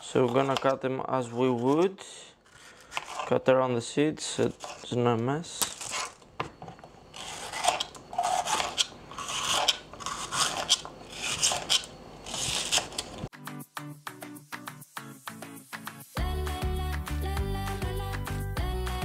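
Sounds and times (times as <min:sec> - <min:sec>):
music: 0:13.3 - 0:19.0.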